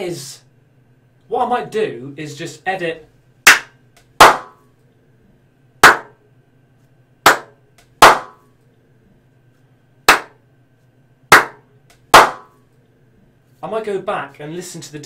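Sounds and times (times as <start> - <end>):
hand claps with room echo: 3.5 - 4.6, 5.8 - 6.2, 7.3 - 8.4, 10.1 - 10.4, 11.3 - 11.6.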